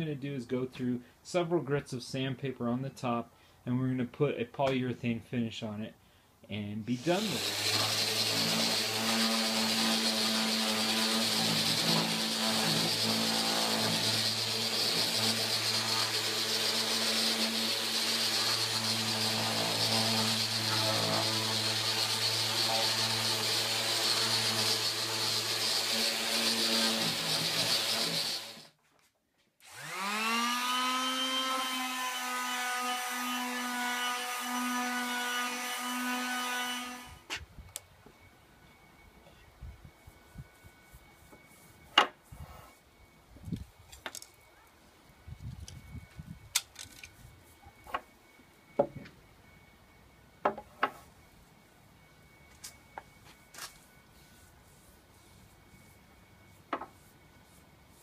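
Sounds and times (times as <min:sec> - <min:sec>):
electric sander running on wood: 0:07.0 - 0:28.6, 0:29.6 - 0:32.7.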